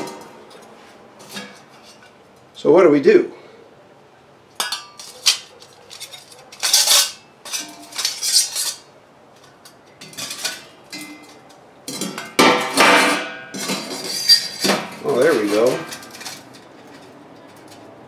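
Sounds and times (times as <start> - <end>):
metal on metal rattle: 0.0 - 2.2, 4.6 - 17.9
metal parts clinking: 4.6 - 12.4, 13.0 - 17.8.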